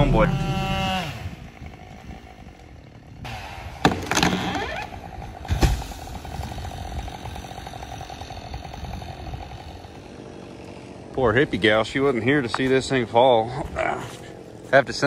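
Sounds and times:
chainsaw idling: 0.0 - 15.0
tree trunk crashing to ground: 3.8 - 8.7.

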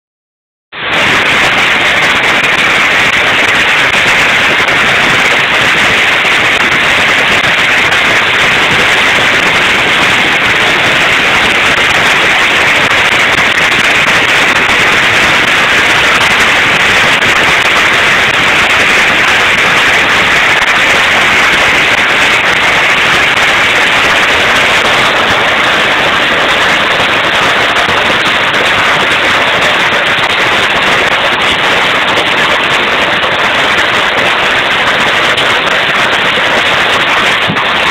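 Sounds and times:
firecrackers crackling: 0.8 - 37.9.

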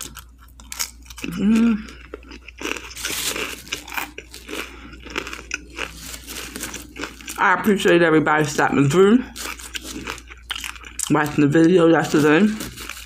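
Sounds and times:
crunchy chewing: 0.0 - 8.0, 9.3 - 13.0
person humming: 1.3 - 2.0.

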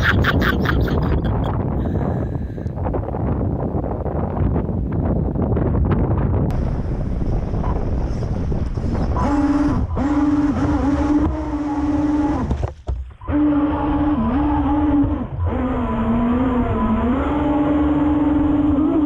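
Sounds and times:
electric boat motor whining: 6.5 - 19.0.

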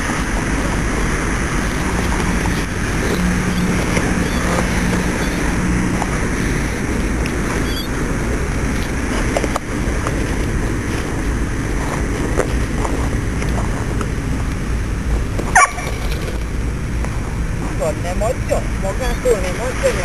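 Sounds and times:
low outdoor rumble: 0.0 - 20.0
dog yelping: 15.6 - 16.0.

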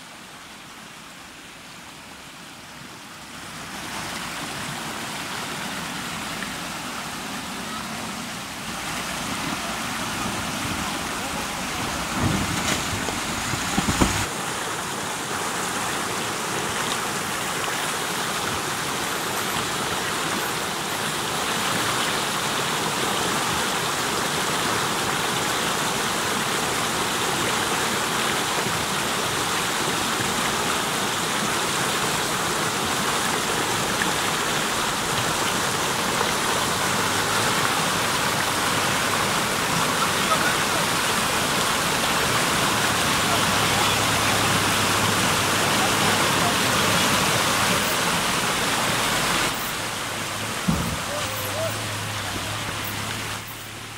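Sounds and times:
river water rushing: 0.0 - 53.9
low thumps: 12.0 - 14.3.

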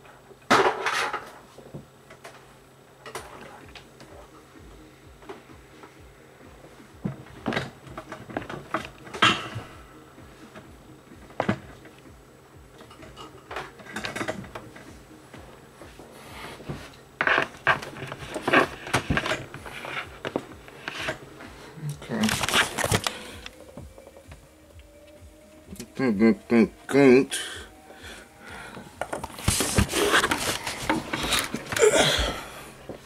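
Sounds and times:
faint steady hum: 0.0 - 33.0
objects and cables clattering on desk: 12.8 - 14.8, 17.2 - 21.2, 22.2 - 23.6.

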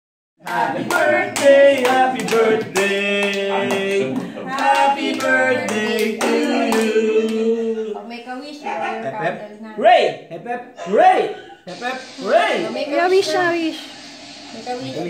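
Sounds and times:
hands clapping: 0.4 - 7.4
people singing: 0.4 - 8.2.

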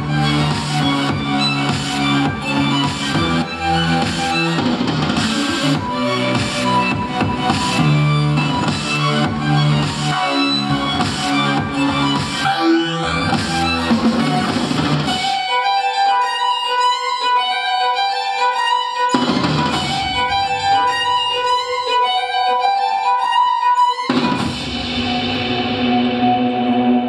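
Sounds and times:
low drums and bass: 0.0 - 15.2
sustained tones: 24.1 - 27.0.

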